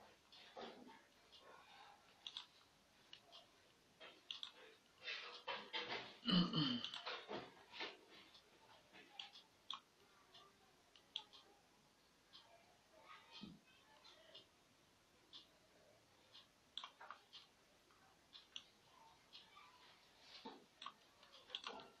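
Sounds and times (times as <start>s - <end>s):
computer mouse clicks: 2.2s - 3.4s, 4.2s - 4.6s, 9.1s - 9.9s, 10.9s - 11.4s, 16.3s - 17.5s, 20.4s - 22.0s.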